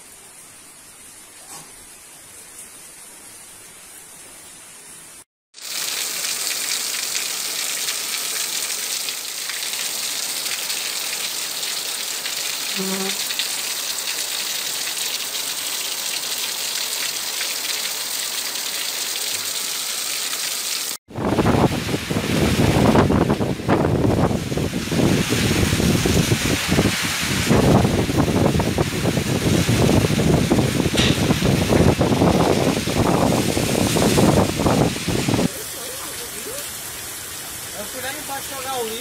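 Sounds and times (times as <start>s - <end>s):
heavy rain pouring down: 0.0s - 39.0s
rain falling: 0.0s - 39.0s.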